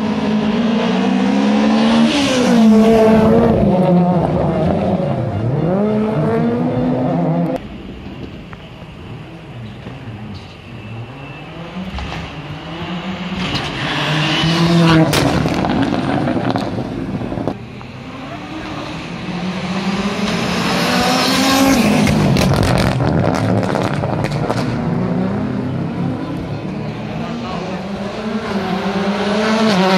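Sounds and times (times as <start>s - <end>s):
rally car engines revving: 0.0s - 29.9s.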